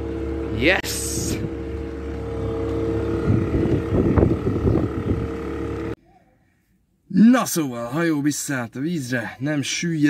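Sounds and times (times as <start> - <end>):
boat engine running: 0.0 - 6.0
wind noise on microphone: 3.0 - 5.8.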